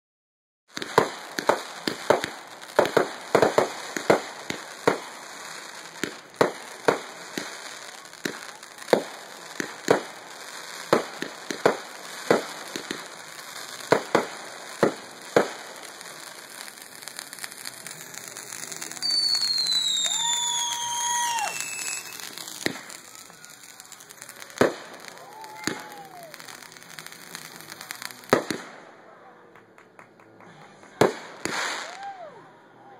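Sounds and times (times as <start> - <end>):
fireworks bangs and crackles: 0.7 - 32.3
falling whistle: 19.0 - 22.2.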